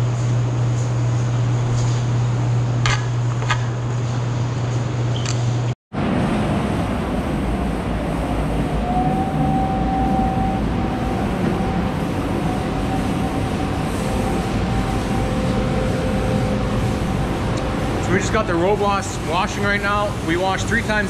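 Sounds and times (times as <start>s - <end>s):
thin mechanical whine: 6.7s - 21.0s.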